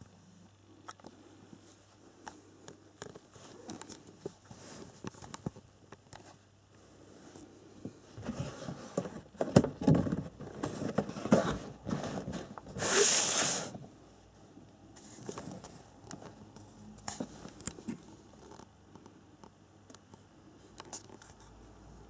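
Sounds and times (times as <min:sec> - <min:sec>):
cardboard sliding on cardboard: 0:10.9 - 0:13.8.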